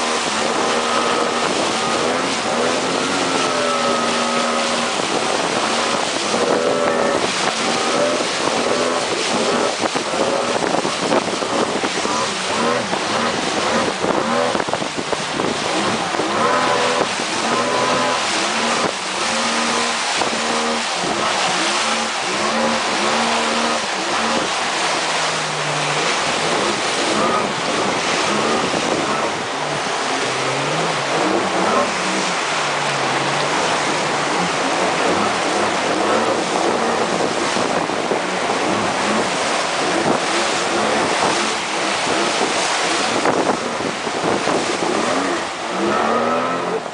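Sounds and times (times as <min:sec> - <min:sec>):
outboard motor running: 0:00.0 - 0:46.9
rapids rushing: 0:00.0 - 0:46.9
water spray off hull: 0:00.0 - 0:46.9
wind on microphone: 0:00.0 - 0:46.9.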